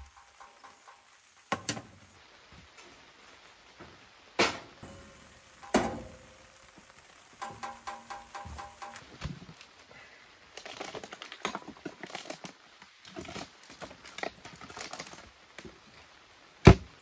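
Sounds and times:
faint steady hiss: 0:00.0 - 0:17.0
metal pot clanking on grate: 0:04.8 - 0:06.4, 0:07.4 - 0:09.0.

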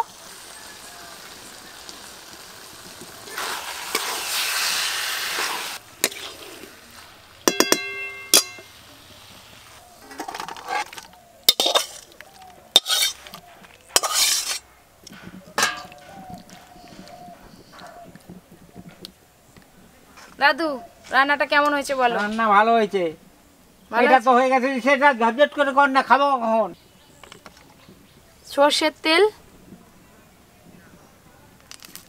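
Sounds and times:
curry sizzling in a pan: 0:00.0 - 0:10.9, 0:11.5 - 0:13.2, 0:14.0 - 0:14.6
spatula scraping pan: 0:03.0 - 0:08.8, 0:09.7 - 0:14.6
metal spatula clinking on pan: 0:07.5 - 0:08.7, 0:11.5 - 0:12.0, 0:14.0 - 0:14.6, 0:15.6 - 0:16.0.

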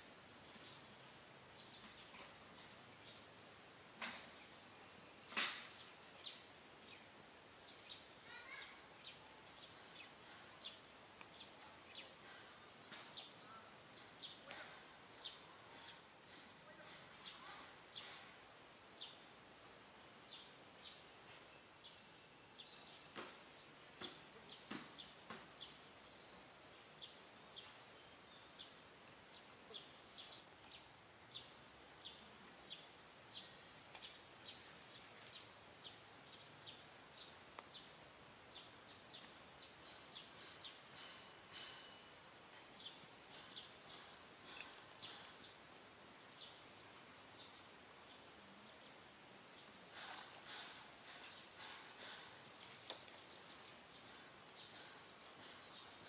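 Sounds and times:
high insect drone: 0:00.0 - 0:56.0.

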